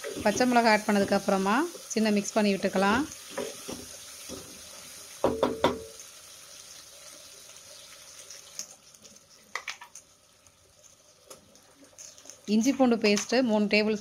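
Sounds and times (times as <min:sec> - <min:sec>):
vegetables sizzling in oil: 0:00.0 - 0:14.0
spatula knocking on metal pot: 0:05.2 - 0:06.0.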